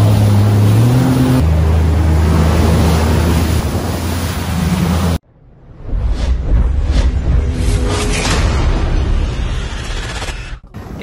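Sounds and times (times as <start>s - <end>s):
jet ski engine drone: 0.0s - 5.2s
water rushing: 0.0s - 5.2s.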